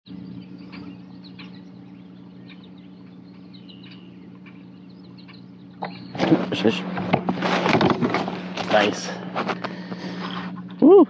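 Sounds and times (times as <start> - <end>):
small birds chirping: 0.1 - 6.8
steady low hum: 0.1 - 11.0.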